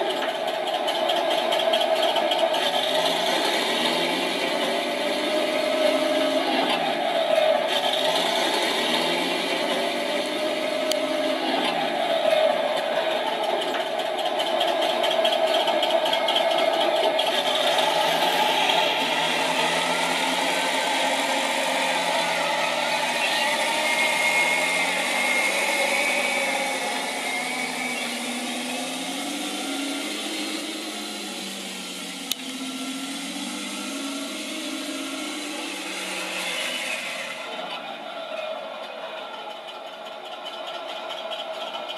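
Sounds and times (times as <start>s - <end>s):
simulated tank engine sound: 0.0s - 41.9s
electric motor whine: 17.7s - 37.6s.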